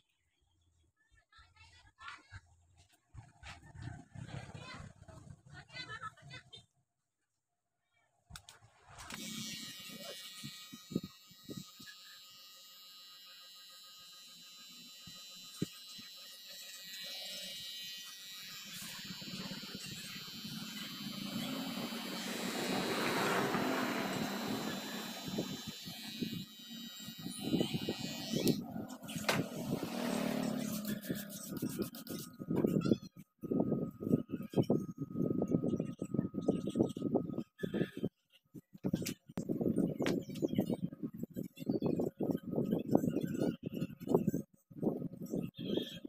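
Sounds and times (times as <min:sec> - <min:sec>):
electric hair clipper buzzing: 0:09.1 - 0:32.1.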